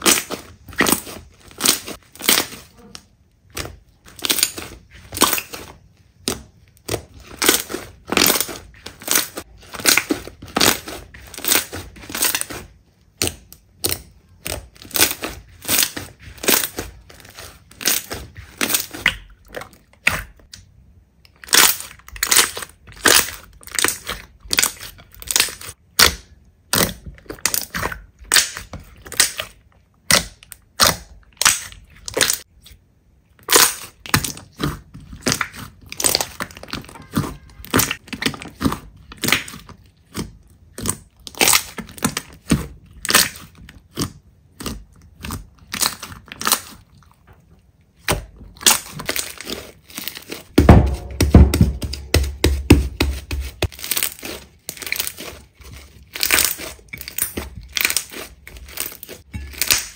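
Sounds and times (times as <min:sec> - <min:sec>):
slime squishing crackle: 0:00.0 - 0:20.6, 0:21.2 - 0:59.9.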